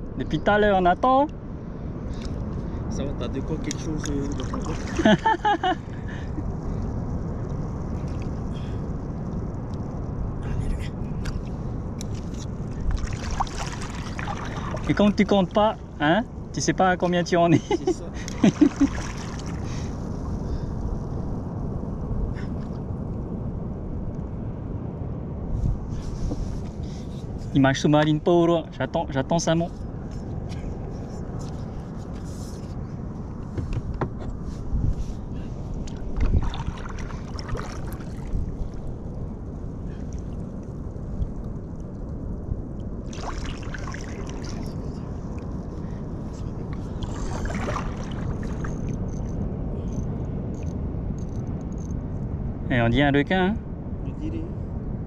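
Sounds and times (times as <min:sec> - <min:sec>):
wind on microphone: 0:00.0 - 0:55.0
small waves lapping against hull: 0:01.7 - 0:17.4, 0:18.1 - 0:21.5, 0:25.5 - 0:28.2, 0:29.4 - 0:50.0.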